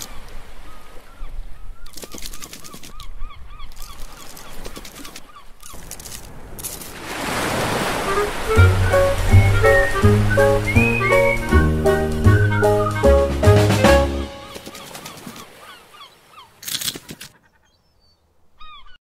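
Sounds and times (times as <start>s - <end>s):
music with bass line: 8.6s - 14.3s.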